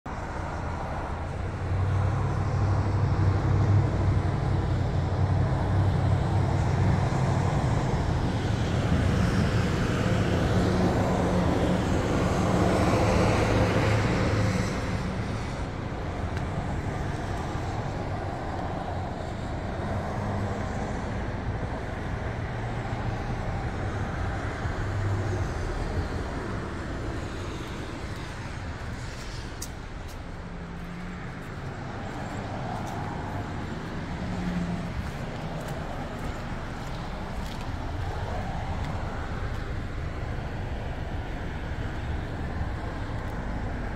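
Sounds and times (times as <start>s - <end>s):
road traffic: 0.0s - 43.9s
vehicle engine humming: 0.1s - 43.9s.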